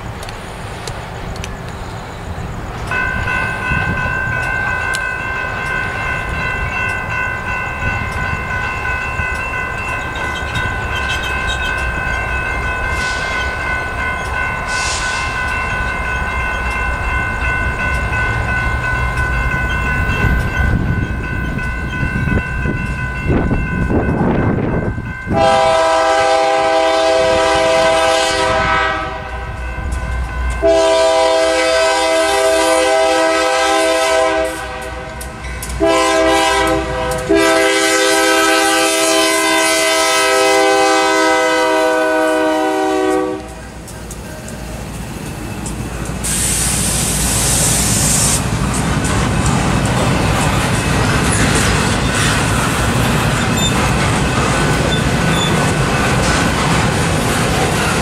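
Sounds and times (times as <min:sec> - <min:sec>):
train rumble: 0:00.0 - 0:58.0
steady high ringing tone: 0:01.2 - 0:25.6
locomotive air horn chord: 0:14.7 - 0:15.3, 0:25.3 - 0:29.5, 0:30.6 - 0:35.2, 0:35.8 - 0:43.6.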